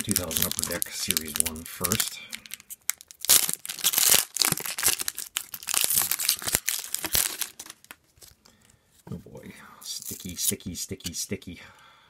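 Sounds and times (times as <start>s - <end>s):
foil wrapper tearing and crinkling: 0.0s - 8.4s.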